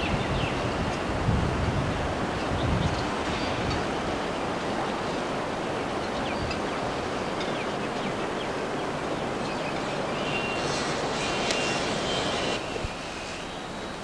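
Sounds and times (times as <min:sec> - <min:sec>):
electric train rolling on track: 0:00.0 - 0:14.0
faint high wheel squeaks: 0:10.2 - 0:14.0.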